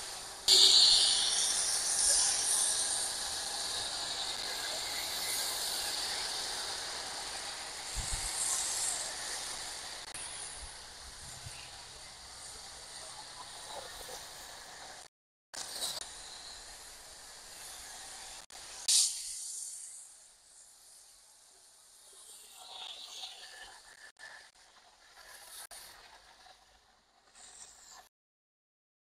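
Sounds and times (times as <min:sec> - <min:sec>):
loud hiss: 0:00.0 - 0:12.6, 0:15.6 - 0:21.2.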